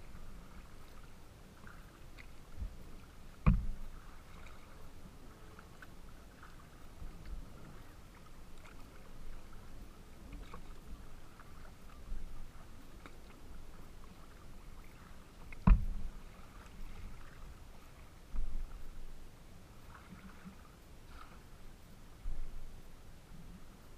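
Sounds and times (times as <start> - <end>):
steady low rumble: 0.0 - 20.2, 20.8 - 23.9
water lapping against kayak hull: 0.0 - 23.9
knock on hull: 3.4 - 3.8, 15.6 - 16.0.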